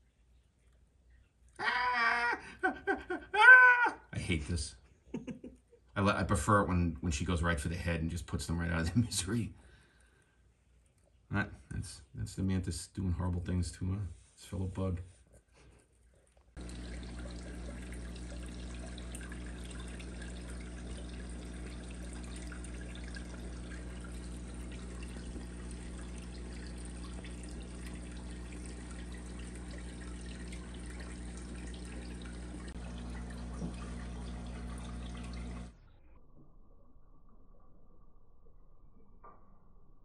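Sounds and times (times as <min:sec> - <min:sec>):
water trickling in aquarium: 0:16.0 - 0:39.5
steady low hum: 0:16.6 - 0:35.8.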